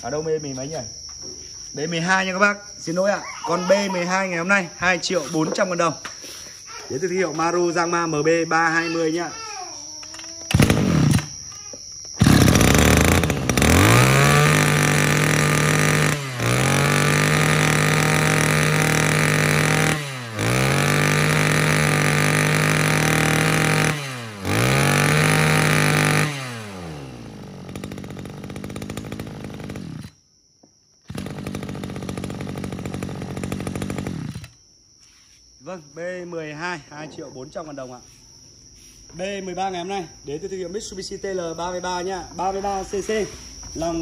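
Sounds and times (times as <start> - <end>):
brush cutter engine revving: 10.5 - 11.4, 12.2 - 30.2, 31.1 - 34.6.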